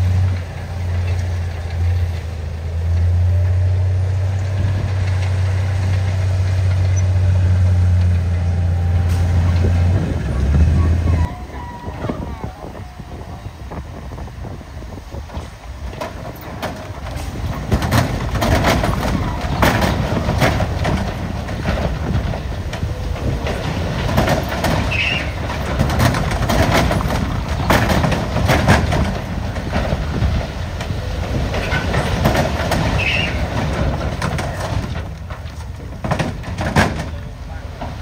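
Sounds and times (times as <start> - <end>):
truck engine rumbling: 0.0 - 38.0
soil and rocks clattering: 15.1 - 38.0.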